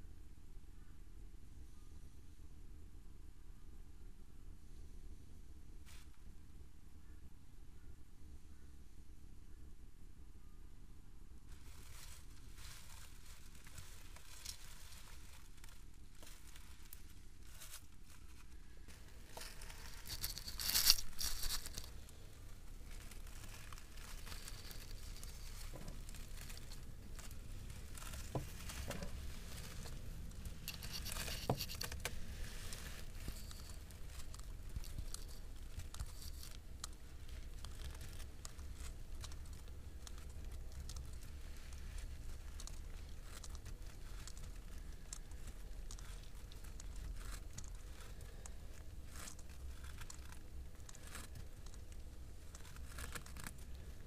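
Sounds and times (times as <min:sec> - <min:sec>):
lizards rustling against grass: 0:11.5 - 0:54.0
steady low rumble: 0:18.3 - 0:52.6.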